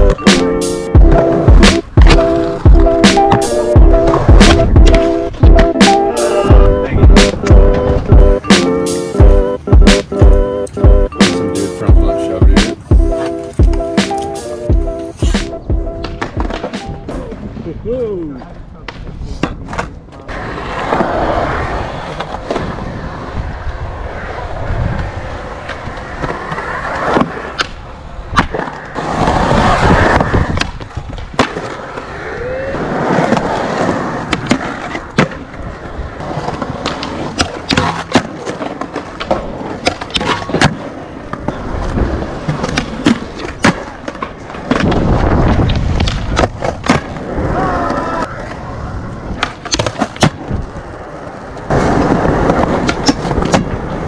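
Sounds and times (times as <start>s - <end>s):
skateboard clacks: 0.0s - 17.5s, 32.8s - 54.0s
skateboard wheels rolling on concrete: 0.0s - 54.0s.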